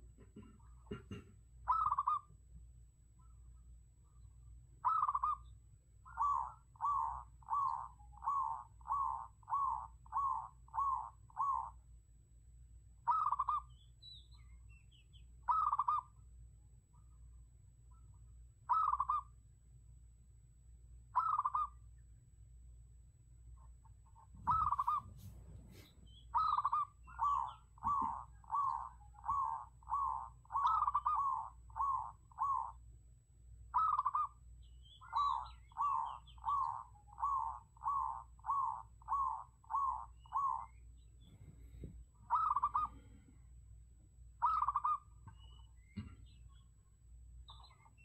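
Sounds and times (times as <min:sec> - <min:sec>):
dove cooing: 0:00.3 - 0:02.3, 0:04.8 - 0:05.4, 0:06.1 - 0:11.8, 0:13.1 - 0:13.7, 0:15.5 - 0:16.1, 0:18.7 - 0:19.3, 0:21.2 - 0:21.8, 0:24.4 - 0:32.8, 0:33.7 - 0:34.4, 0:35.0 - 0:40.8, 0:41.5 - 0:43.2, 0:44.4 - 0:46.2.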